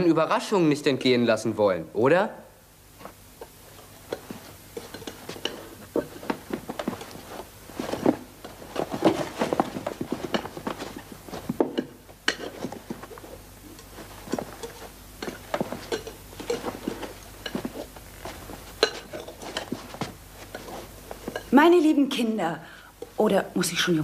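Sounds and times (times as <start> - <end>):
people moving about: 2.9 - 21.8.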